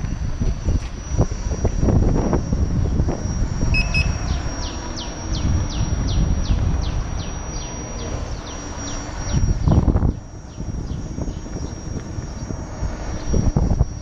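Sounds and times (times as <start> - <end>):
wind buffeting microphone: 0.0 - 14.0
high falling chirps: 1.1 - 14.0
double beep: 3.7 - 6.2.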